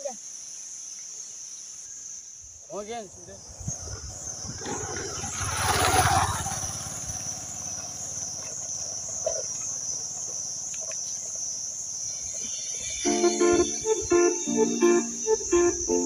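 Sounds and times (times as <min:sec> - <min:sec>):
high-pitched insect drone: 0:01.8 - 0:16.0
distant motorcycle engine: 0:03.4 - 0:12.8
keyboard music: 0:13.0 - 0:16.0.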